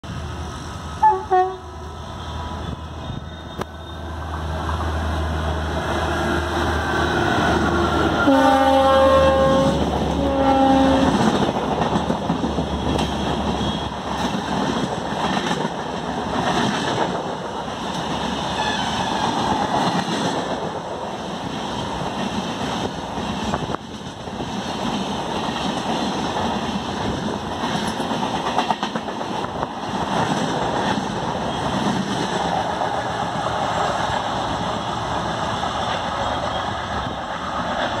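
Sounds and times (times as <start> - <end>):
train passing at speed: 0.0 - 38.0
locomotive horn: 1.0 - 4.0, 6.8 - 11.3.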